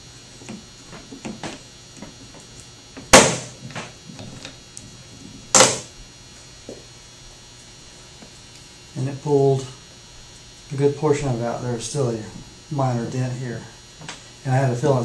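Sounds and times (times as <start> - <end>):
sharp pops of steel panel: 3.1 - 3.9, 5.6 - 5.9.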